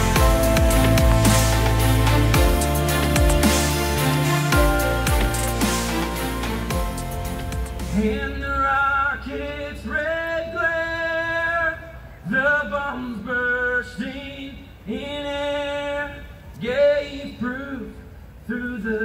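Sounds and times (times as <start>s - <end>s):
man singing into a microphone: 7.9s - 19.0s.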